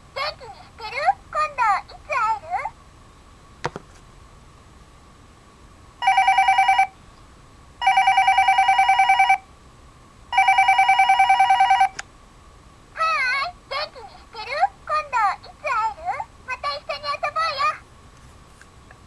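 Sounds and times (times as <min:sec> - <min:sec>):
toy phone electronic ringtone: 0:06.0 - 0:06.9, 0:07.8 - 0:09.4, 0:10.4 - 0:12.0.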